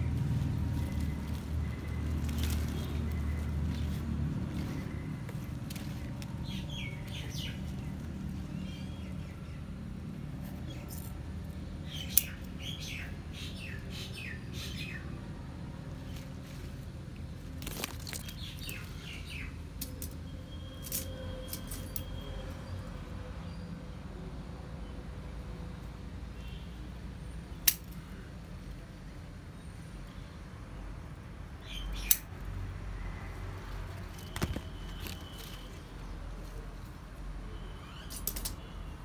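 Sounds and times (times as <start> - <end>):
birds chirping: 0.0 - 15.2, 15.9 - 22.8, 33.6 - 39.0.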